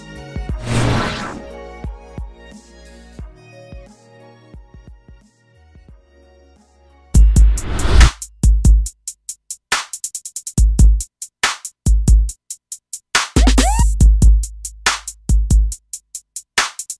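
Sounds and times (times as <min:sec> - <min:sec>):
gliding synth: 0:00.6 - 0:01.6
electronic music: 0:13.4 - 0:14.0.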